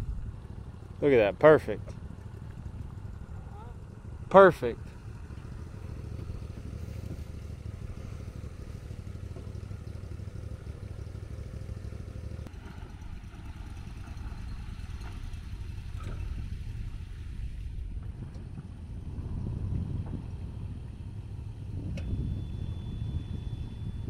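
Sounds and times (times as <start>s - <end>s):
faint steady tone: 21.0s - 24.0s.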